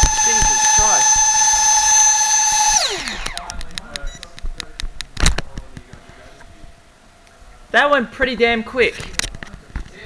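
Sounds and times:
high-pitched motor whine: 0.0s - 3.6s
scattered clicks: 2.7s - 6.1s.

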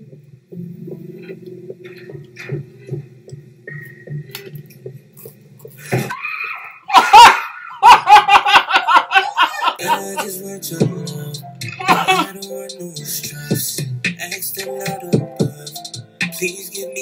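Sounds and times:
woman laughing loudly: 6.1s - 10.2s, 11.8s - 12.3s.

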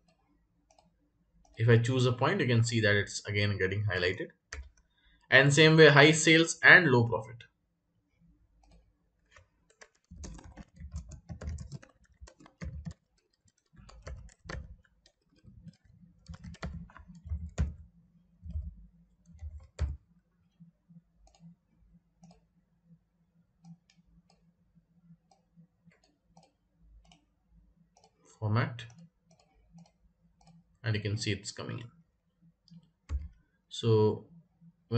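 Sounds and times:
keyboard typing: 4.5s - 4.9s, 8.6s - 20.1s, 32.7s - 33.4s.

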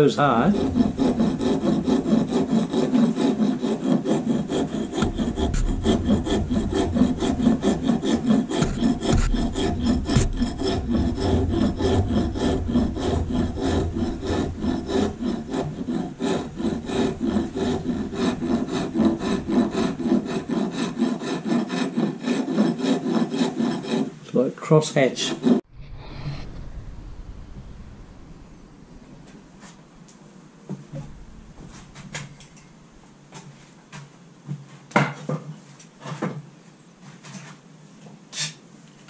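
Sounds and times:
wood rasp scraping wood: 0.0s - 25.7s.

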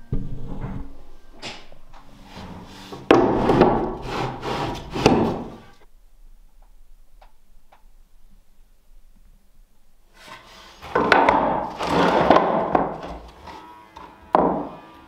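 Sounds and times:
floorboard scraping and knocking: 2.2s - 5.7s, 10.2s - 14.9s.

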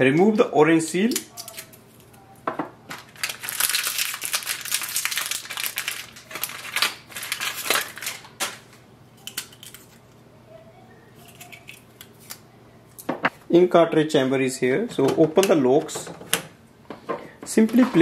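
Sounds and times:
plastic crinkling and crackling: 2.9s - 10.1s.

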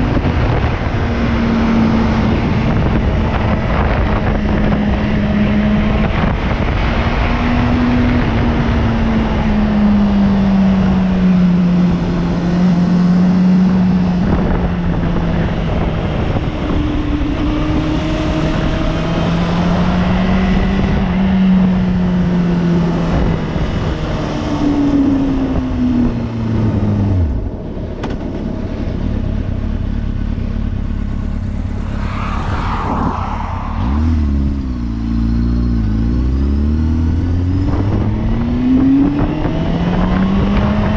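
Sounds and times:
wind rushing on microphone: 0.0s - 29.6s, 31.1s - 40.9s.

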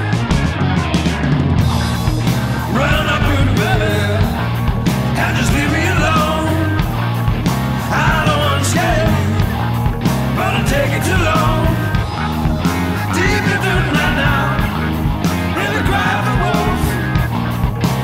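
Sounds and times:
blues-rock band playing: 0.0s - 18.0s
person singing: 2.7s - 6.9s, 7.9s - 9.6s, 10.4s - 17.3s.

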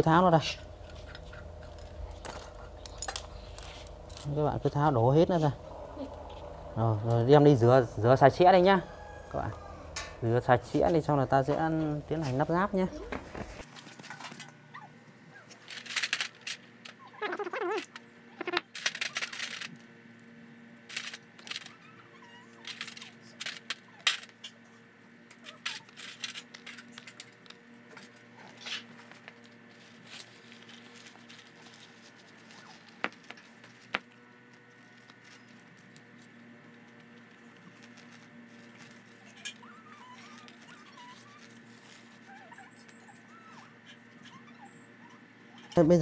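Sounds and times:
small metal parts clinking: 0.8s - 4.8s, 15.5s - 17.0s, 25.4s - 28.8s.

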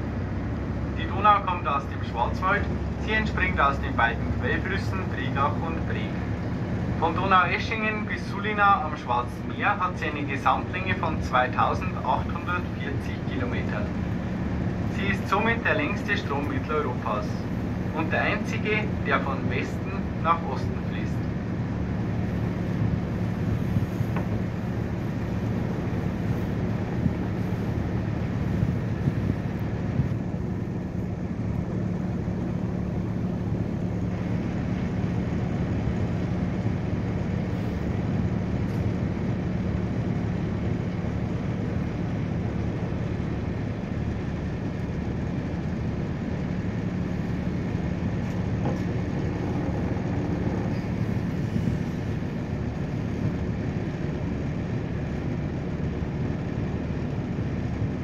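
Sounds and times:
boat engine droning: 0.0s - 58.0s
wind and water rushing: 0.0s - 58.0s.

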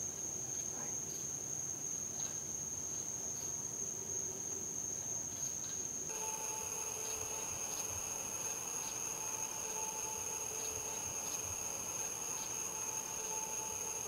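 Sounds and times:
crickets trilling: 0.0s - 14.0s
steady multi-tone hum: 6.0s - 14.0s.

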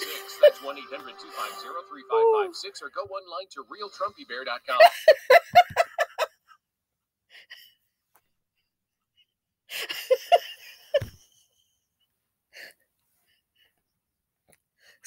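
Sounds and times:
woman laughing: 4.7s - 6.4s, 9.7s - 11.5s.

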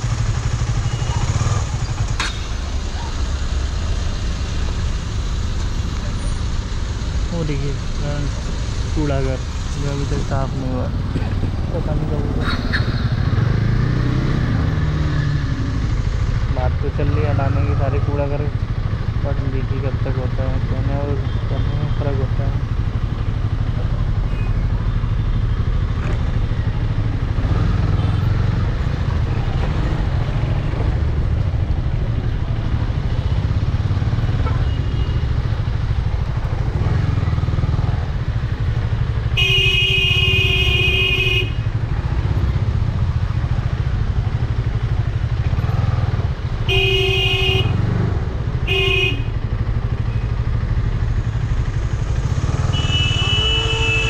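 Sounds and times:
motorcycle engine at low revs: 0.0s - 6.0s, 6.6s - 54.0s
vehicle horn honking: 39.3s - 41.7s, 46.7s - 47.8s, 48.6s - 49.4s, 52.6s - 54.0s.

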